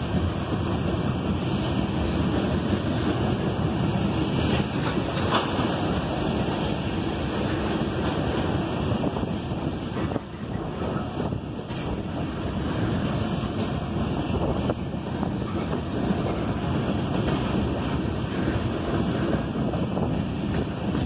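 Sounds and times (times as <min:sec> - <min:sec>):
train wheels rumbling on rail: 0:00.0 - 0:21.0
wind buffeting microphone: 0:00.0 - 0:21.0.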